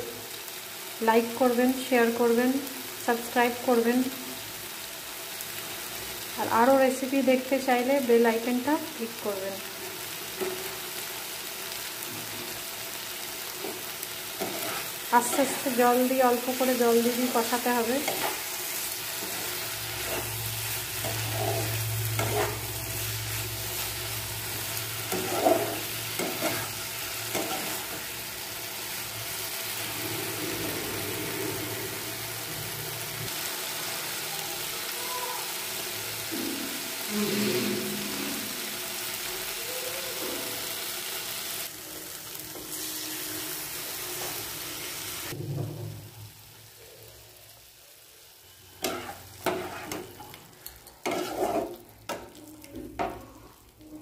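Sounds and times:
food sizzling in oil: 0.0 - 54.0
spatula scraping a pan: 13.5 - 23.1, 25.0 - 28.1, 48.8 - 52.4.

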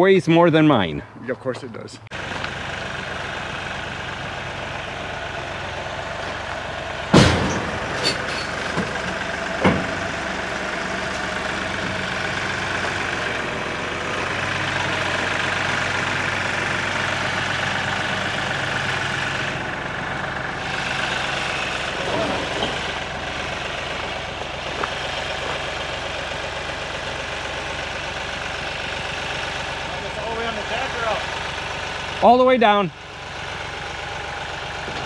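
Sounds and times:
diesel tractor engine running: 0.0 - 35.0
tyres clunking onto ramps: 5.8 - 26.4, 34.7 - 35.0.

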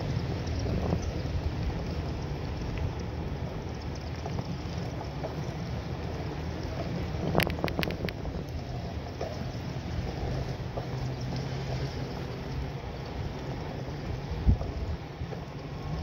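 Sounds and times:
bicycle rolling noise: 0.0 - 16.0
wind buffeting microphone: 0.0 - 16.0
sharp clicks or rattles: 7.4 - 8.2.

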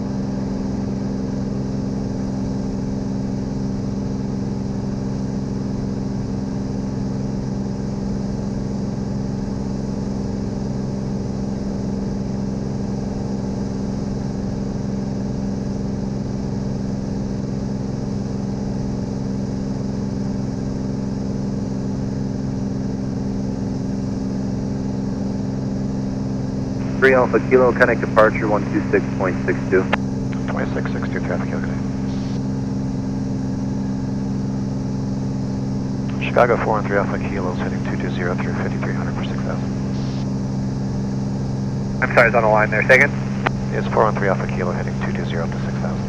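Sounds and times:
propeller aircraft engine droning: 22.0 - 46.0.

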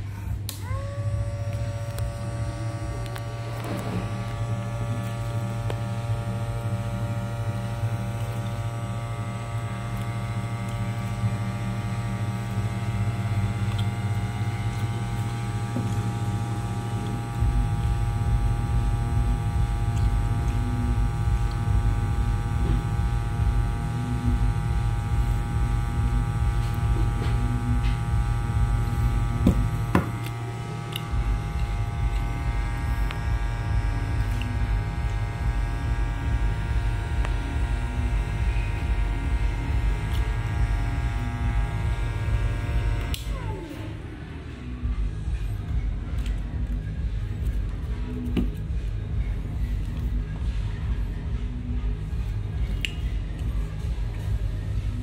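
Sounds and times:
hot air gun blower fan: 0.0 - 45.4
deep rumble: 0.0 - 55.0.

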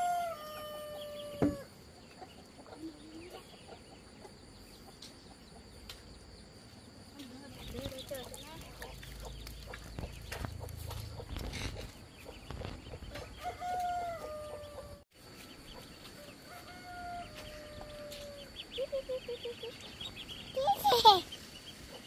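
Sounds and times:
rooster crowing: 0.0 - 1.7, 13.4 - 15.0, 16.4 - 18.5.

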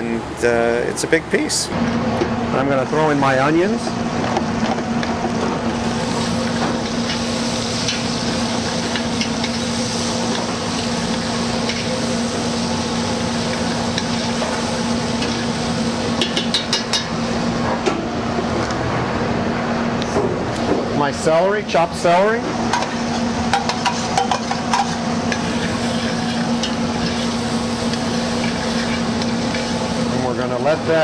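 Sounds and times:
steady low hum: 0.0 - 31.0
onions sizzling: 5.6 - 16.8, 22.7 - 30.6.

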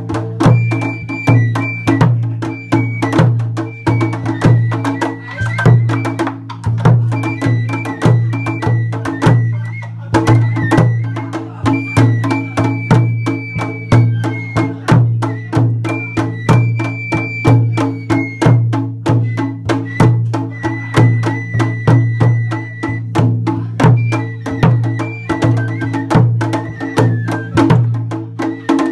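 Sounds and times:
large taiko drum beating: 0.0 - 28.8
high melody line: 0.4 - 6.4.

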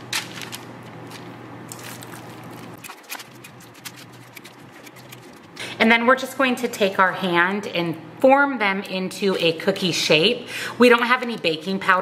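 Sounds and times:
paper rustling: 0.0 - 5.6
scoop scraping metal bowl: 2.8 - 5.6.

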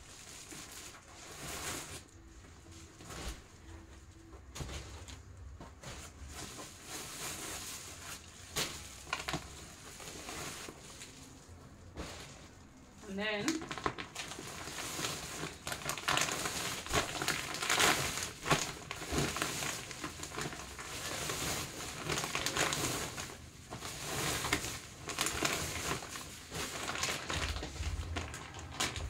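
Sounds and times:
plastic packaging crinkling: 0.0 - 29.0
low thumps: 27.3 - 29.0.

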